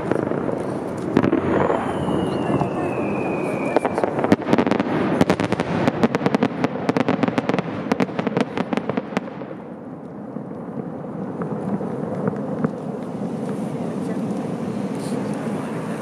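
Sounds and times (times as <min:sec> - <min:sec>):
falling firework whistle: 0:00.0 - 0:05.6
fireworks crackling pops: 0:00.0 - 0:16.0.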